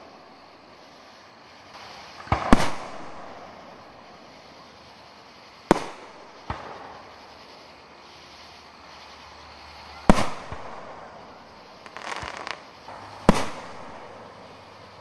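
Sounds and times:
firework shells bursting: 0:01.7 - 0:04.0, 0:05.6 - 0:07.8, 0:10.0 - 0:14.7.

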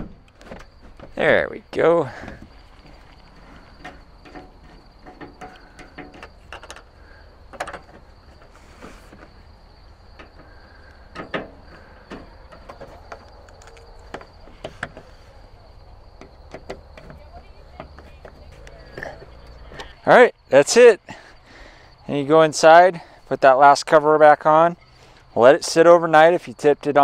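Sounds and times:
clicks and knocks on plastic: 0:07.5 - 0:08.5, 0:16.2 - 0:19.9.

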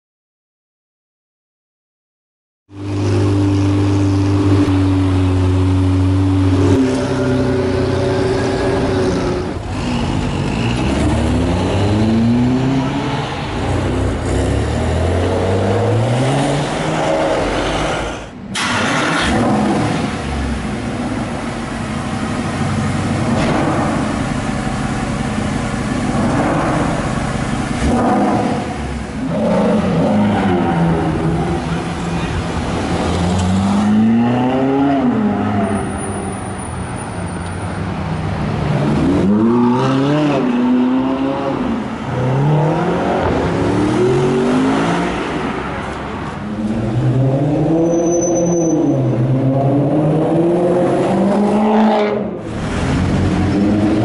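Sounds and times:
city traffic noise: 0:02.7 - 0:54.0
car engine revving: 0:02.8 - 0:36.2, 0:38.6 - 0:54.0
car engine idling: 0:20.1 - 0:27.8.

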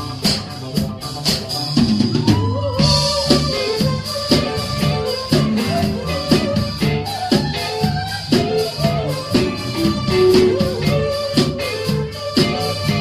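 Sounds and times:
bass guitar: 0:00.0 - 0:13.0
drum kit beat: 0:00.0 - 0:13.0
electric guitars: 0:00.0 - 0:13.0.

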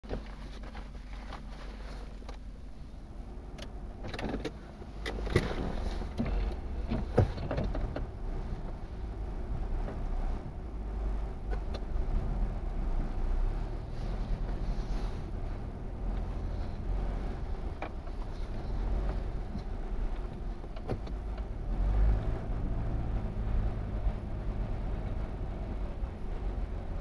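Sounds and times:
car engine idling: 0:00.0 - 0:27.0
sharp clicks and knocks: 0:03.5 - 0:08.1, 0:19.0 - 0:21.6.

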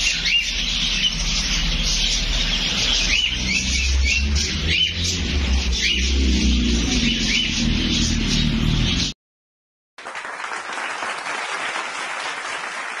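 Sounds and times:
caged bird chirp: 0:00.0 - 0:09.1
applause: 0:10.0 - 0:13.0.

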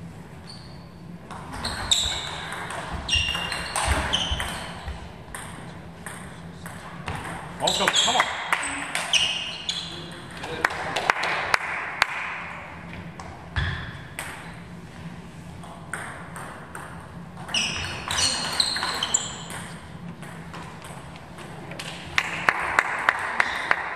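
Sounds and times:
sneakers squeaking on floor: 0:00.4 - 0:05.6, 0:07.0 - 0:10.3, 0:13.6 - 0:14.6, 0:17.4 - 0:21.4
people clapping: 0:10.4 - 0:12.6, 0:21.8 - 0:23.9.

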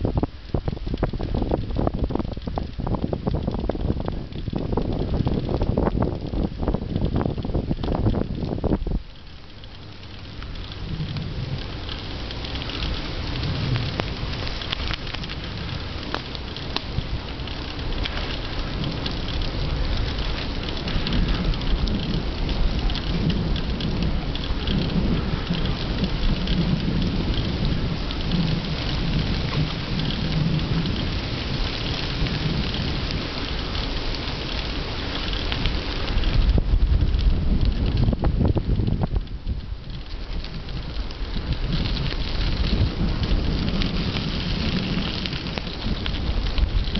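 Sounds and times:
rain pattering: 0:00.0 - 0:46.9
wind rumbling on microphone: 0:00.0 - 0:46.9
tyres hissing on wet asphalt: 0:08.6 - 0:36.6, 0:40.0 - 0:46.9.

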